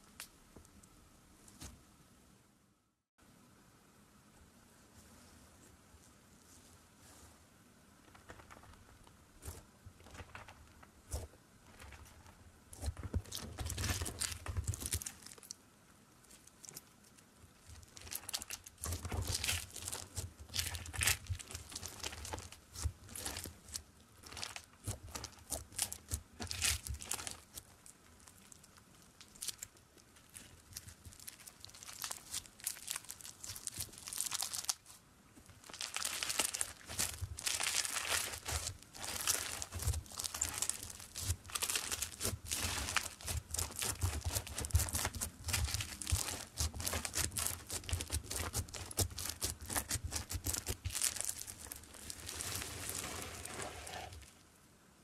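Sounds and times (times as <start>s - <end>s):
slime crackling and popping: 8.1s - 15.6s, 17.6s - 53.0s.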